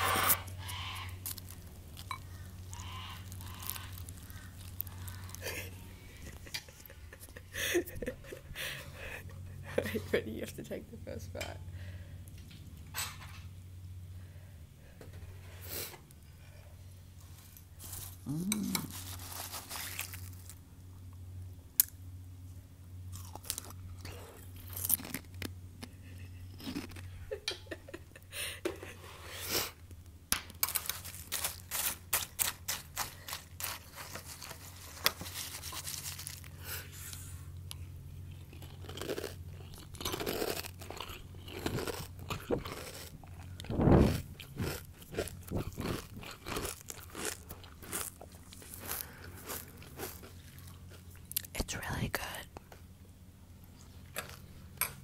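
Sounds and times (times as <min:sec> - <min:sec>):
low steady hum: 0:00.0 - 0:55.0
cereal crunching: 0:00.4 - 0:06.5, 0:17.8 - 0:20.6, 0:23.1 - 0:27.1, 0:30.6 - 0:36.8, 0:37.7 - 0:51.5.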